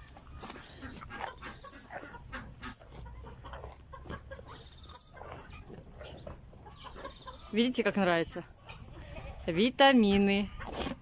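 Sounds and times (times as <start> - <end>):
camel chewing with wet crunches: 0.0 - 7.5, 10.4 - 11.0
bird clucking: 0.0 - 9.5
bird chirps: 3.6 - 9.0.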